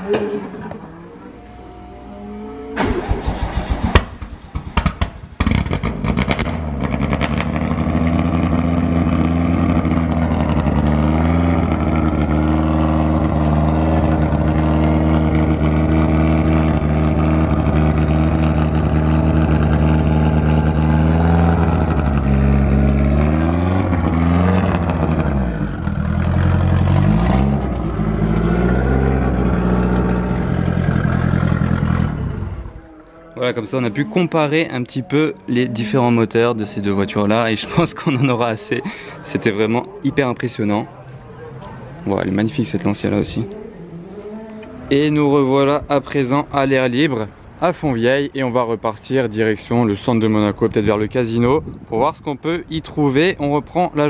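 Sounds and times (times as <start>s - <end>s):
car engine cranking: 0.0s - 32.4s
car engine idling and revving: 0.0s - 33.0s.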